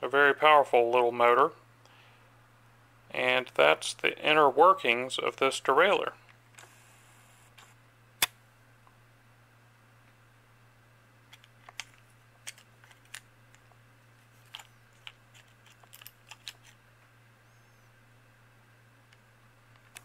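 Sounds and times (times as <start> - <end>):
steady low hum: 0.0 - 20.0
plastic parts clicking and knocking: 14.4 - 16.8.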